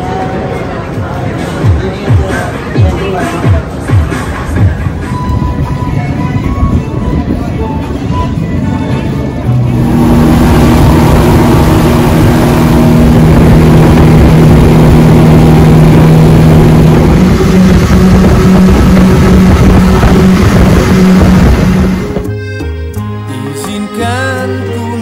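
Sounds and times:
motorboat engine running: 9.5 - 22.3
rush of wind and water: 9.7 - 22.2.

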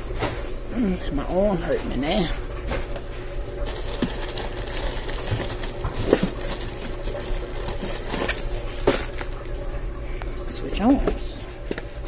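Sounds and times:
steady machine hum: 0.0 - 12.0
plastic packets rustling and crinkling: 3.6 - 9.6.

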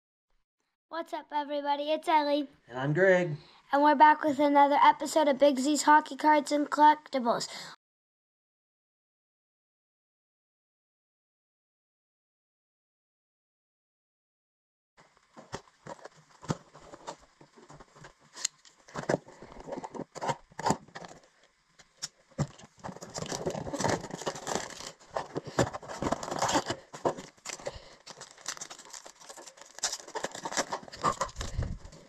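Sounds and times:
cardboard tearing and rustling: 15.4 - 21.4, 22.0 - 32.0.

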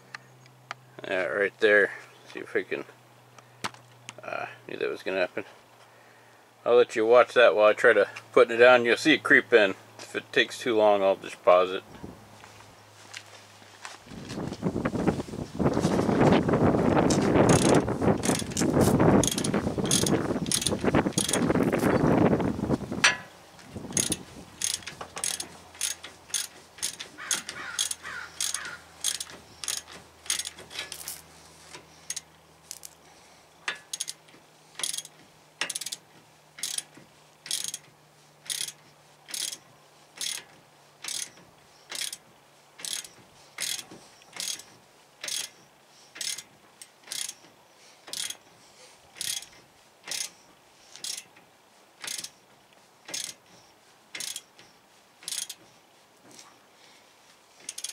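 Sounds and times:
ratchet wrench clicking: 17.5 - 22.0, 23.9 - 33.0, 33.7 - 34.2, 34.8 - 36.0, 36.6 - 39.6, 40.2 - 42.2, 42.8 - 48.4, 49.2 - 51.3, 52.0 - 52.4, 53.1 - 53.5, 54.1 - 55.6, 57.6 - 57.9.

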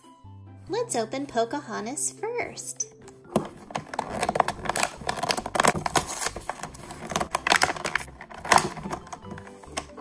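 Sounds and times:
plastic packaging crinkling: 3.3 - 9.6.

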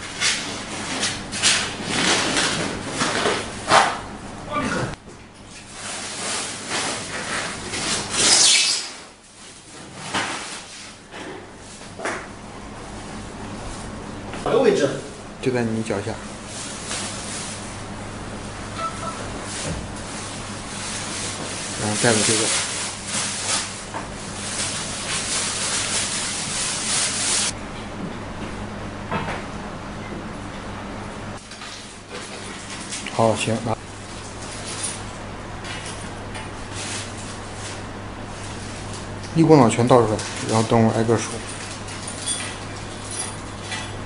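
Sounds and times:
plastic wrapping rustling: 19.4 - 27.5.

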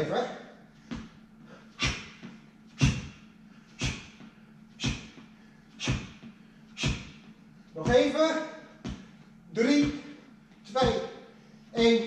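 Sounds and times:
faint steady hum: 0.0 - 12.0
man exhaling forcefully: 1.5 - 7.2.

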